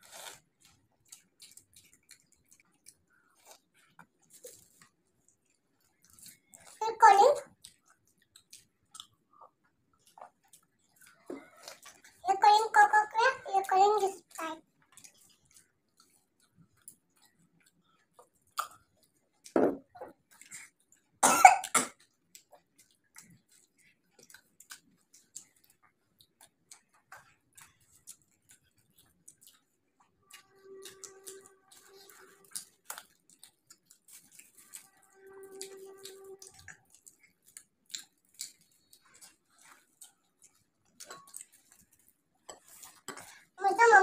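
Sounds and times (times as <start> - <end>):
chewing and crunching food: 0.0 - 44.0
person coughing: 21.2 - 22.0.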